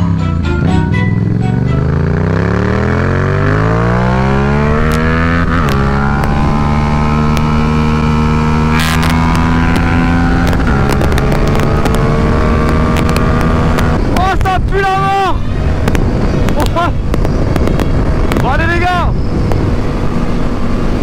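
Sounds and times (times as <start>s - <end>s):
motorcycle engine accelerating: 0.0s - 14.5s, 15.5s - 21.0s
wind noise on microphone: 2.8s - 21.0s
buffeting clicks on microphone: 9.0s - 14.0s.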